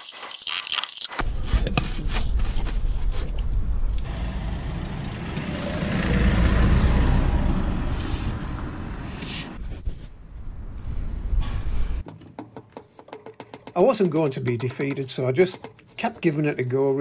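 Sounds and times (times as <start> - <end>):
low rumble: 1.2 - 12.0.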